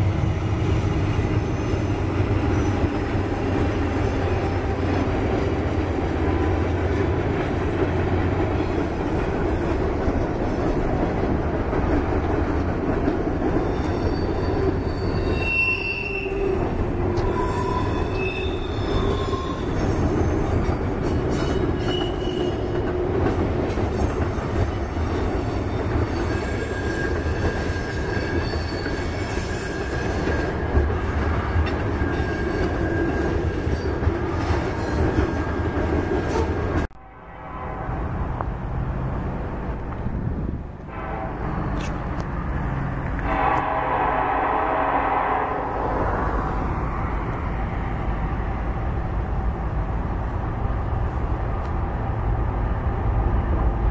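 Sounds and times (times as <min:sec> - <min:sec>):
freight train rumbling past: 0:00.0 - 0:53.9
train wheels squealing: 0:00.1 - 0:04.7, 0:13.5 - 0:22.9, 0:23.9 - 0:36.6.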